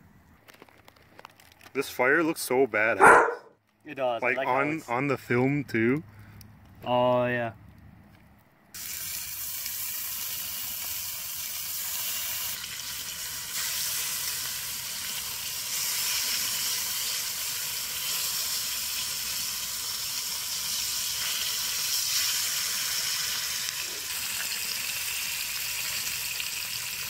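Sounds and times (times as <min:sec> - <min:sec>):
bacon sizzling in a skillet: 0:08.8 - 0:27.0.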